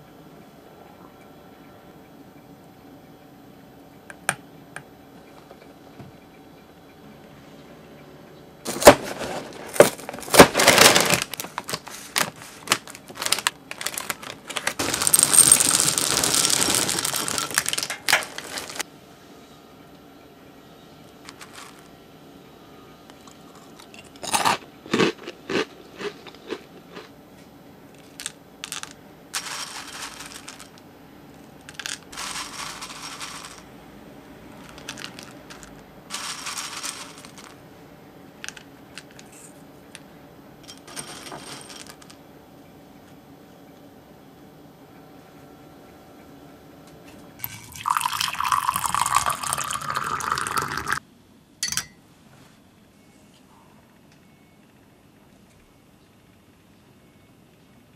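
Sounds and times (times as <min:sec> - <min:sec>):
cereal poured into glass bowl: 0:14.8 - 0:18.8, 0:29.4 - 0:30.7, 0:31.7 - 0:33.6, 0:34.7 - 0:37.5.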